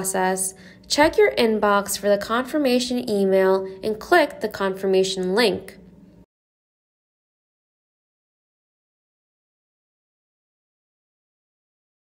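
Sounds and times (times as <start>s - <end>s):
woman narrating: 0.0s - 6.0s.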